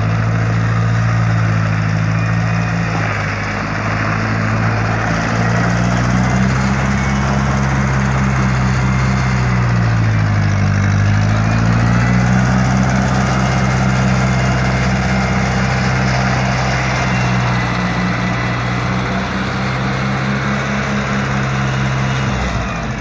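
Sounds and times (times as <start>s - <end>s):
tractor engine running: 0.0s - 23.0s.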